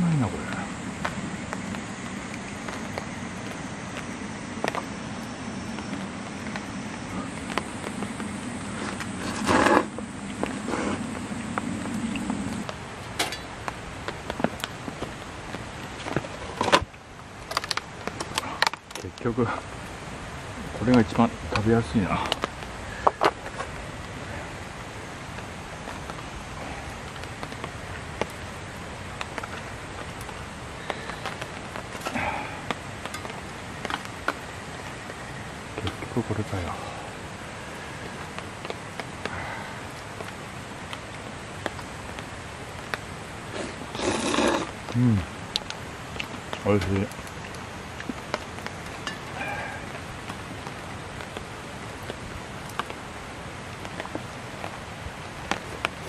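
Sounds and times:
background hiss: 0.0s - 56.0s
rustle: 0.0s - 56.0s.

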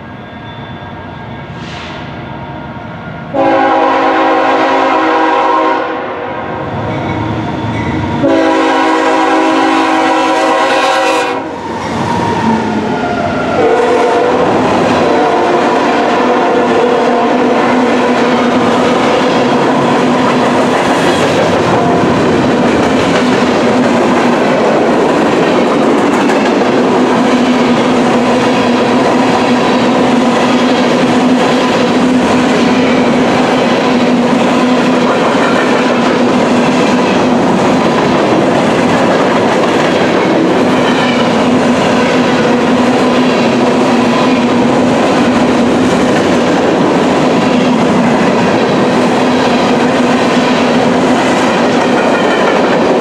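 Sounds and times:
train wheels rumbling on rail: 0.0s - 53.0s
locomotive air horn: 3.3s - 6.4s, 8.2s - 11.6s, 13.6s - 17.7s.

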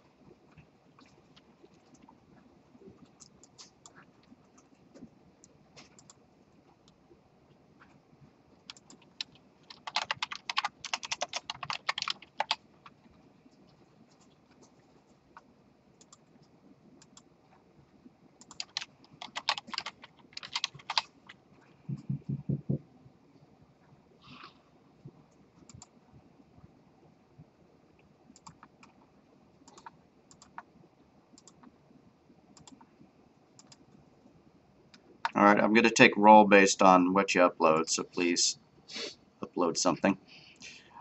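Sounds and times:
typing on computer keyboard: 8.6s - 13.0s, 18.4s - 22.8s, 28.4s - 29.0s, 29.6s - 30.7s, 32.6s - 32.8s, 33.6s - 33.8s.

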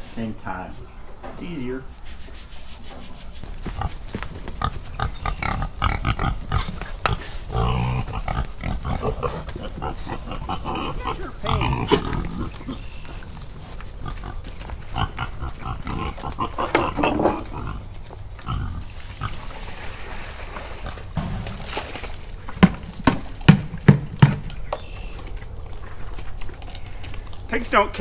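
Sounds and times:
pigs grunting and snuffling: 3.3s - 28.0s
sharp knocks: 22.6s - 24.5s.

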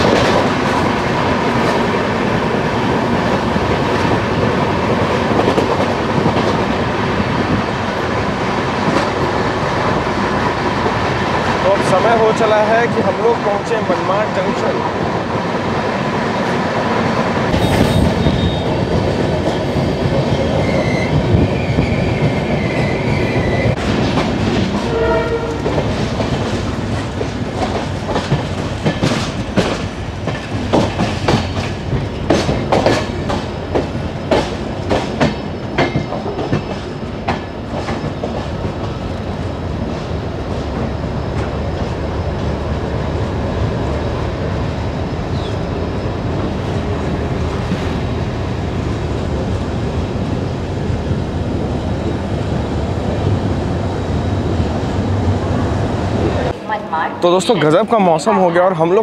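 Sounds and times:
train rumble: 0.0s - 59.0s
train wheels clattering over joints: 17.5s - 42.5s.

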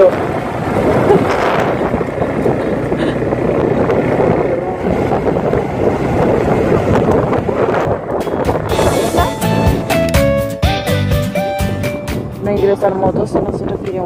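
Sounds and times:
motorcycle running on gravel: 0.0s - 9.9s
wind on microphone: 0.0s - 10.2s, 11.6s - 14.0s.

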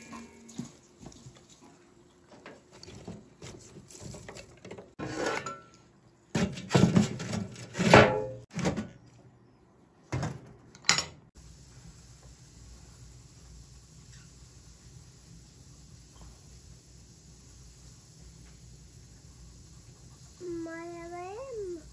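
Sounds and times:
pots and dishes clattering: 0.0s - 1.4s, 4.0s - 5.8s, 6.4s - 8.9s.

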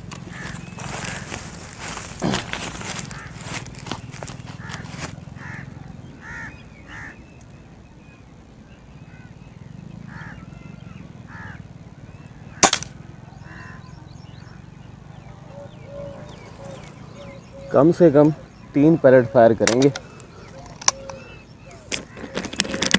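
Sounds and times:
bird calling: 0.0s - 22.9s
air rifle shot crack: 12.6s - 13.0s.

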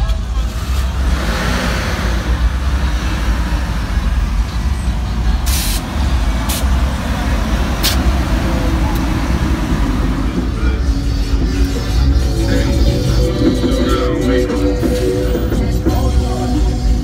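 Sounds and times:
pickup truck exhaust rumble: 0.0s - 17.0s
air hissing: 5.4s - 6.8s.

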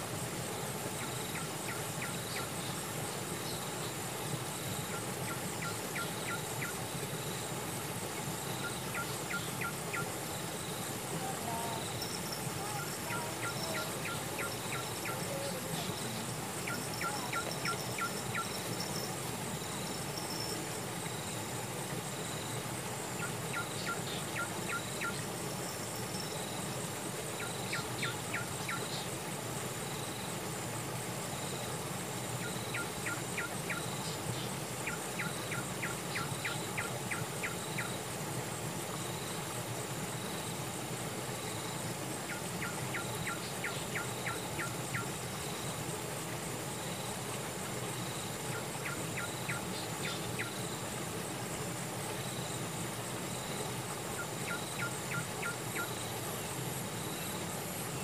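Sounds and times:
insects trilling: 0.0s - 58.0s.

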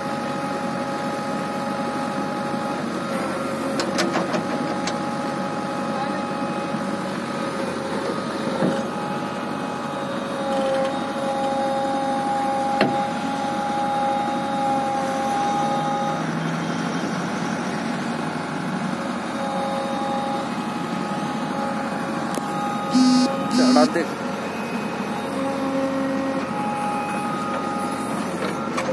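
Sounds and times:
diesel engine under load: 0.0s - 28.9s
hydraulic whine: 19.2s - 28.8s.

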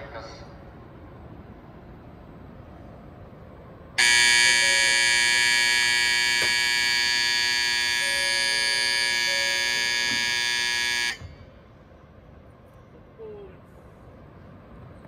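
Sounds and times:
electronic platform bell ringing: 4.0s - 11.4s.

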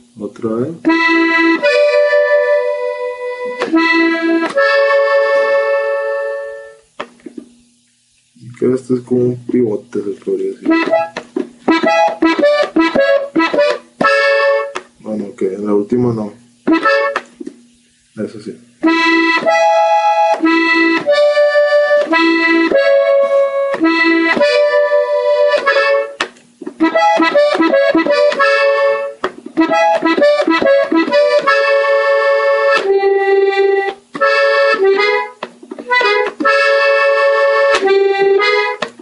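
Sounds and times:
button accordion playing slowly: 0.9s - 6.9s, 10.6s - 14.8s, 16.7s - 17.3s, 18.8s - 26.2s, 26.8s - 39.0s.

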